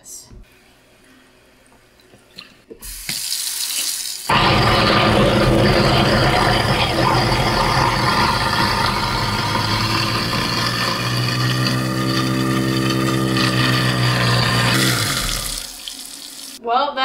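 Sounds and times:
garbage disposal grinding ice: 4.3s - 16.6s.

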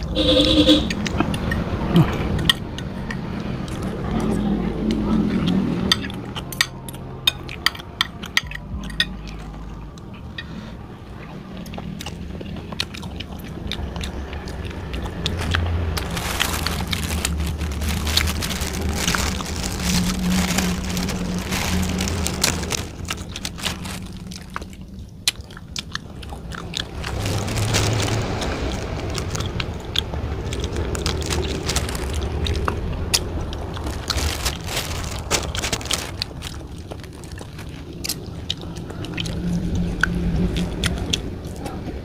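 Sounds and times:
chewing and crunching: 0.9s - 42.0s
plastic bag rustling: 15.3s - 24.8s, 26.9s - 29.7s, 30.5s - 37.9s.

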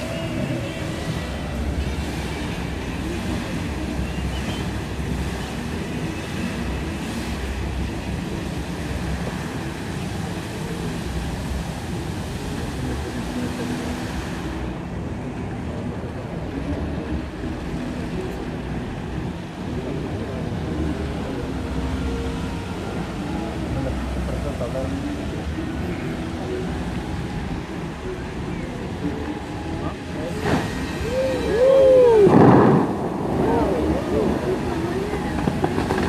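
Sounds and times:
fountain water jets splashing: 0.0s - 36.0s
wind on microphone: 25.1s - 36.0s.

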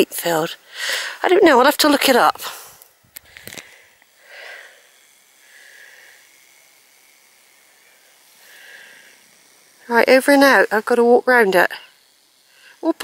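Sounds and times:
soft breathing: 0.6s - 1.2s, 2.4s - 6.8s, 7.8s - 9.7s
small clicks: 2.8s - 4.2s.

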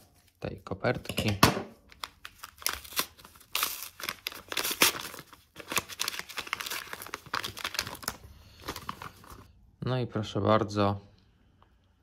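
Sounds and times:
paper crinkling and tearing: 1.9s - 9.5s.

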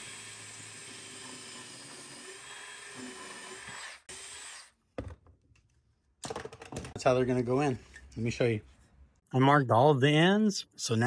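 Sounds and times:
drill boring into wood: 0.0s - 4.7s.

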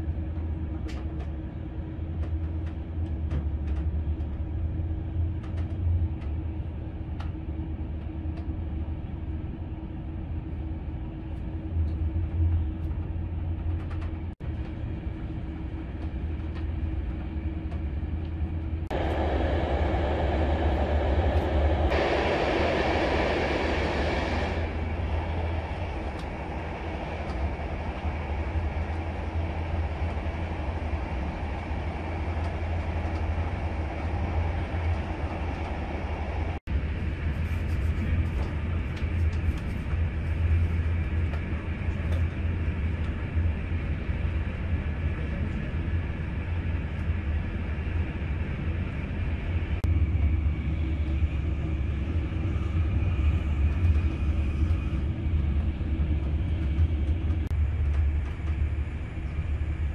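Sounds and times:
faint hum: 0.0s - 59.9s
train rumble inside carriage: 0.0s - 59.9s
loud rushing noise: 18.9s - 36.6s.

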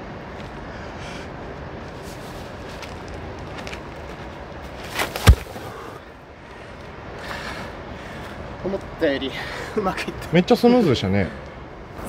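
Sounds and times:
heavy stone thud on ground: 4.9s - 5.7s.

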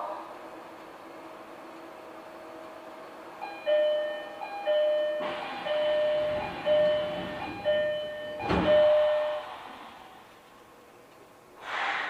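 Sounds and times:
two-note door chime: 3.4s - 9.5s
train doors thudding shut: 4.9s - 9.7s
rush of air: 11.6s - 12.0s.

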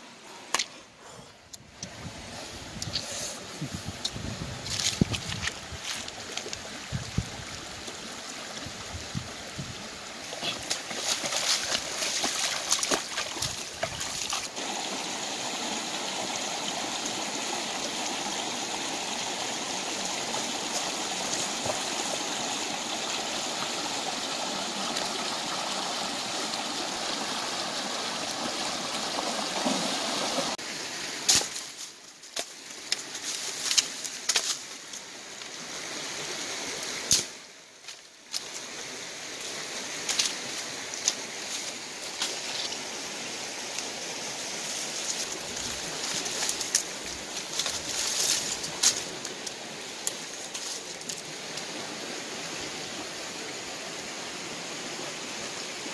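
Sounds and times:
stream running over rocks: 1.6s - 55.9s
rustles: 1.7s - 8.0s, 31.2s - 35.6s, 43.7s - 51.7s
water splashing: 8.6s - 16.9s, 19.2s - 30.6s.

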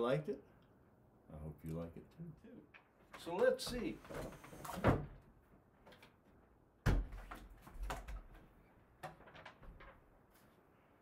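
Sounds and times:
wooden cabinet knocks and thumps: 3.6s - 5.3s, 6.8s - 8.4s.

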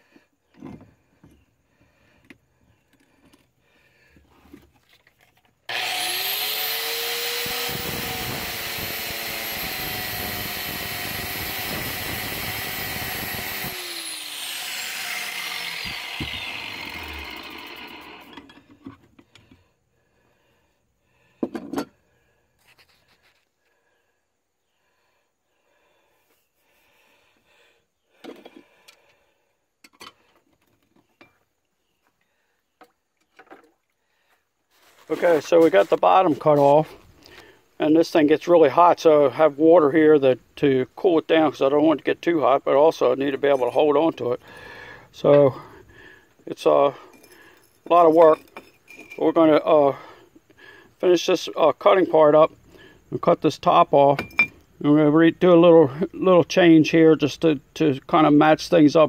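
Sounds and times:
angle grinder cutting steel: 5.7s - 18.5s.

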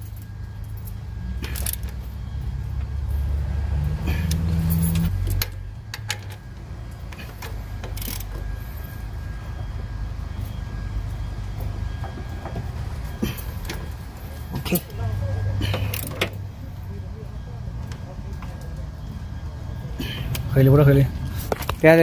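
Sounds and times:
low steady rumble: 0.0s - 20.0s
ratchet and wrench clicking on bolts: 7.8s - 8.3s.

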